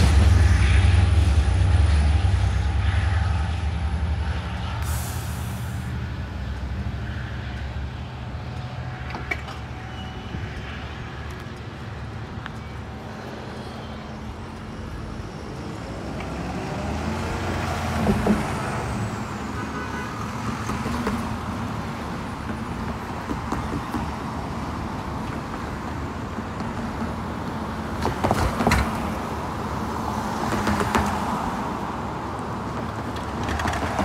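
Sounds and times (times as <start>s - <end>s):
heavy vehicle engine droning: 0.0s - 23.5s.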